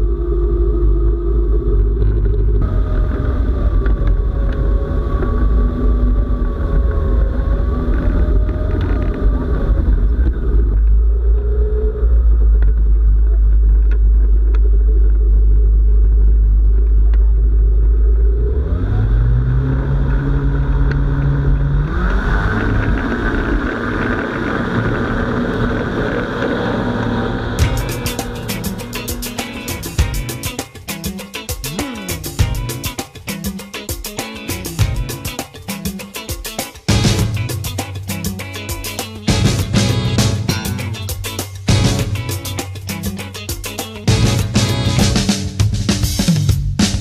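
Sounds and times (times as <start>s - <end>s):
heavy low rumble: 0.0s - 31.2s, 36.9s - 43.4s
ultralight engine and propeller: 0.0s - 36.2s.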